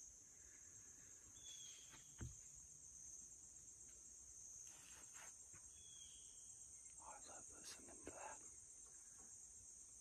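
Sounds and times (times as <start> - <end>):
insects chorus: 0.0 - 10.0
soft thump: 1.9 - 2.4.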